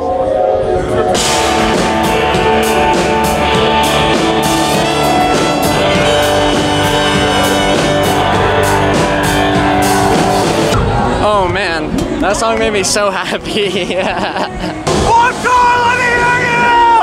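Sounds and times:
electric guitar: 0:00.0 - 0:11.2
drum kit beat: 0:01.1 - 0:10.8.

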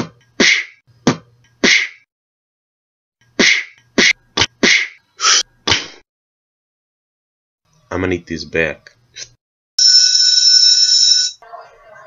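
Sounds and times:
cartoon punch and kick hits: 0:00.0 - 0:02.0, 0:03.4 - 0:05.0, 0:05.6 - 0:06.0.

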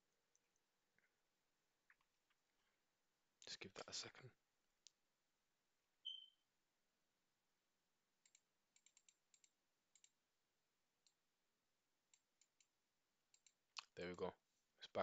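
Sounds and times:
computer mouse clicks: 0:08.2 - 0:10.2, 0:13.3 - 0:13.9.

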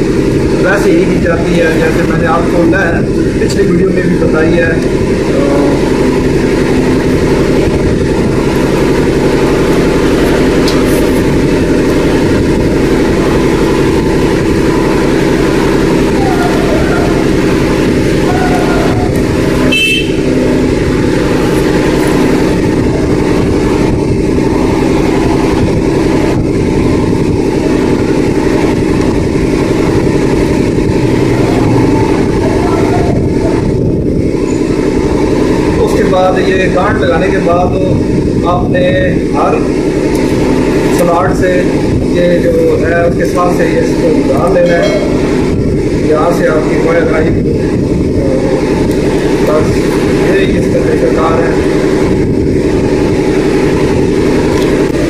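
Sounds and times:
engine drone: 0:00.0 - 0:55.0
short high tone: 0:16.1 - 0:17.4, 0:44.6 - 0:45.3.

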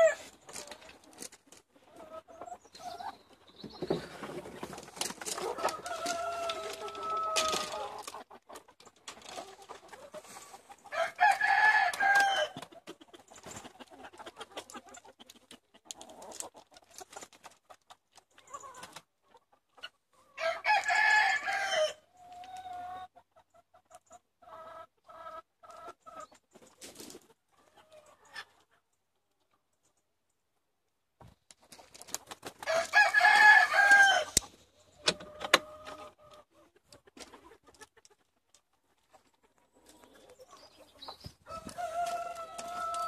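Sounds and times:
hens clucking: 0:00.0 - 0:20.4, 0:22.2 - 0:30.0, 0:32.0 - 0:43.0
rooster crowing: 0:10.9 - 0:12.6, 0:20.4 - 0:22.0, 0:32.7 - 0:34.4, 0:41.5 - 0:43.0.

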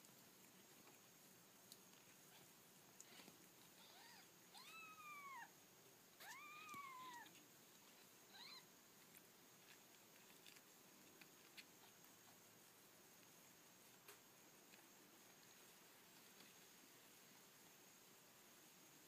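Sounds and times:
kittens mewing: 0:06.2 - 0:07.4.

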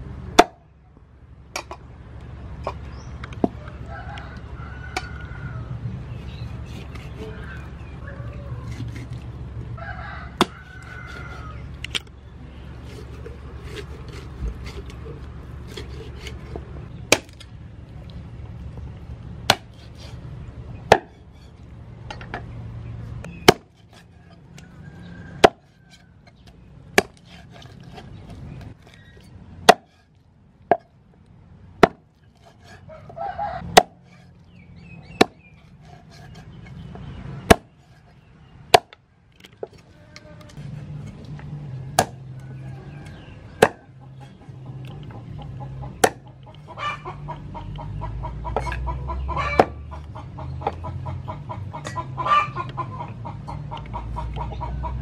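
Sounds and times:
cleaver chopping on wooden block: 0:19.5 - 0:20.0, 0:20.9 - 0:21.2, 0:23.4 - 0:24.1, 0:25.4 - 0:25.8, 0:26.9 - 0:29.0, 0:29.6 - 0:30.0, 0:30.7 - 0:30.9, 0:31.8 - 0:32.8, 0:33.7 - 0:34.3, 0:35.1 - 0:36.4, 0:37.4 - 0:37.8, 0:38.7 - 0:39.0, 0:41.9 - 0:42.2, 0:43.6 - 0:43.9, 0:45.8 - 0:46.3, 0:49.6 - 0:49.8.

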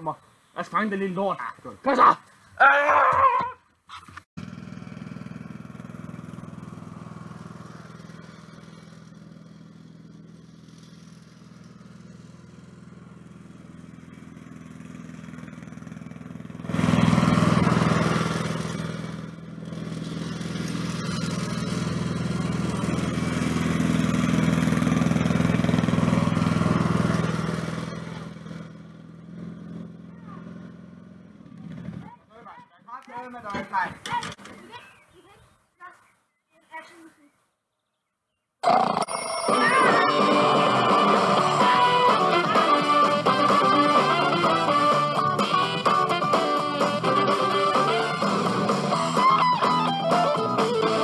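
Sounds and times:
riding lawn mower engine: 0:04.1 - 0:32.1, 0:38.6 - 0:51.0.

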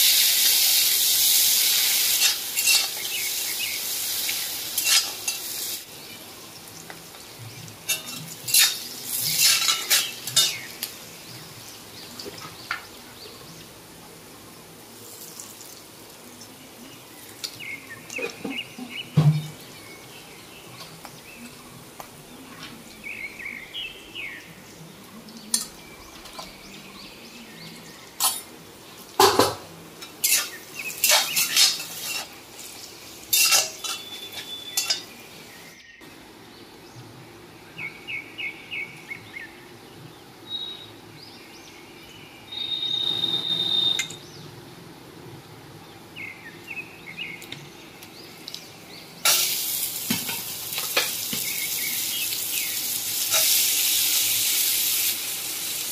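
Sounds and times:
vegetables sizzling in hot oil: 0:00.0 - 0:13.0, 0:15.0 - 0:18.2, 0:28.2 - 0:35.7, 0:48.4 - 0:55.9
metal spatula scraping a pan: 0:02.1 - 0:03.1, 0:04.8 - 0:05.5, 0:07.9 - 0:10.8, 0:30.0 - 0:35.1, 0:53.3 - 0:53.7.

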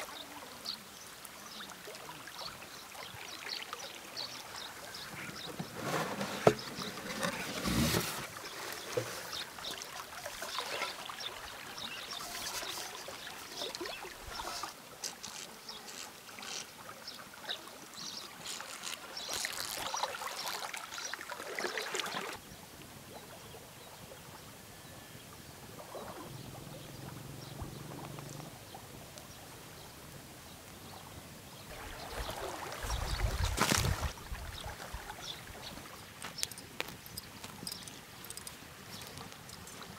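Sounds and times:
river water running and splashing: 0:00.0 - 0:24.6, 0:25.6 - 0:39.9
rustling: 0:05.2 - 0:09.4, 0:18.4 - 0:20.7.

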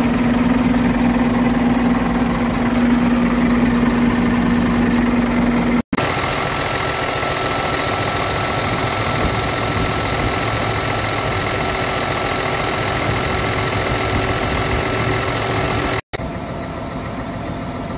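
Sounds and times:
diesel truck engine idling: 0:00.0 - 0:17.9.

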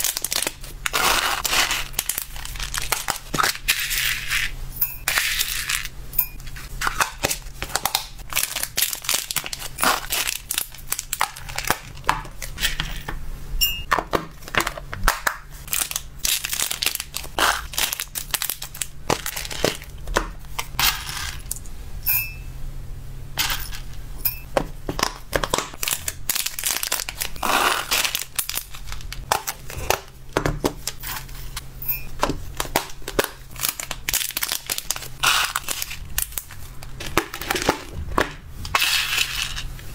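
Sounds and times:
plastic bag crinkling: 0:00.0 - 0:04.2, 0:05.4 - 0:12.8, 0:15.6 - 0:21.6, 0:25.5 - 0:30.2, 0:32.4 - 0:38.0
pellets clicking and rattling: 0:00.0 - 0:13.1, 0:15.6 - 0:21.6, 0:23.4 - 0:31.6, 0:32.2 - 0:39.9.

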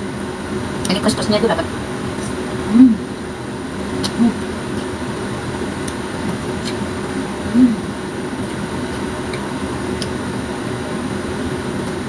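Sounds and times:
brief low hum: 0:07.5 - 0:08.0.

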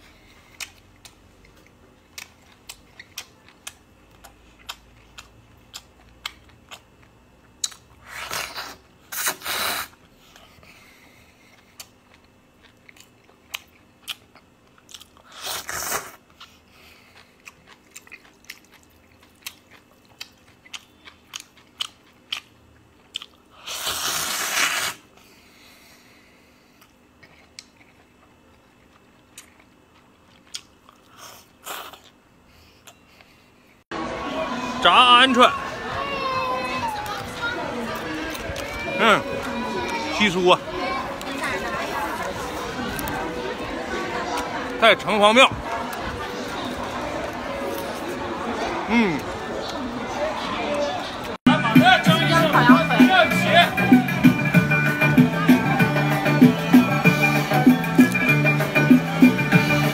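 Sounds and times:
chewing with wet mouth clicks: 0:00.4 - 0:08.7, 0:11.4 - 0:15.3, 0:16.3 - 0:23.5, 0:26.8 - 0:32.2
loud slurps of noodles: 0:08.0 - 0:10.0, 0:15.3 - 0:16.2, 0:23.6 - 0:25.1.

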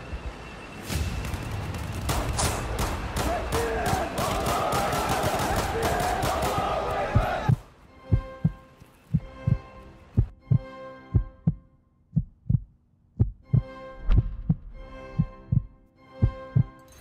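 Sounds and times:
heartbeat-style double thumps: 0:07.1 - 0:09.6, 0:10.2 - 0:16.7.

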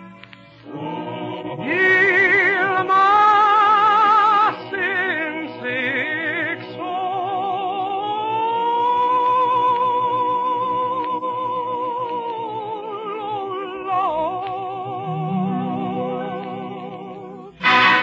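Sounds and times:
operatic singer holding high note: 0:15.0 - 0:18.0
orchestral accompaniment: 0:15.1 - 0:18.0.

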